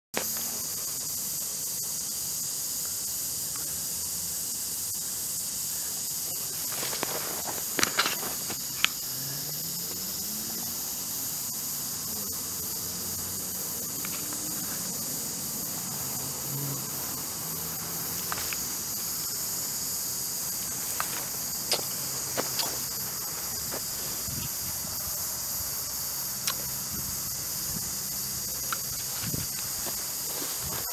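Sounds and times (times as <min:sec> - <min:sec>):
insects chirping: 0:00.1 - 0:30.9
rustles and clicks: 0:06.4 - 0:09.0.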